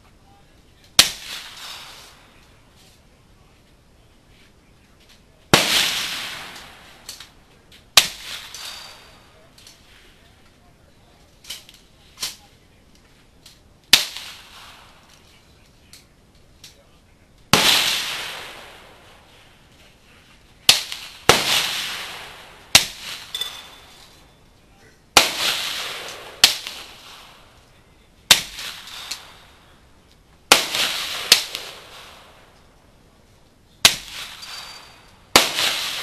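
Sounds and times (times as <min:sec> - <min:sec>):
rifle shots with echo: 0:05.5 - 0:07.3, 0:17.5 - 0:19.4, 0:20.7 - 0:24.2, 0:25.2 - 0:27.6, 0:30.5 - 0:32.5, 0:33.8 - 0:36.0
metallic ring of steel target: 0:23.3 - 0:24.1.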